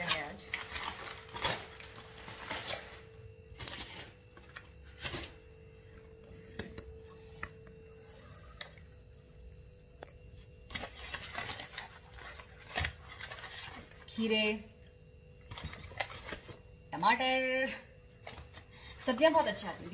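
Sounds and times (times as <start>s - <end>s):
packaging rustling: 0.0s - 6.1s, 10.5s - 14.1s, 15.4s - 16.7s, 18.1s - 19.9s
faint steady hum: 0.0s - 19.9s.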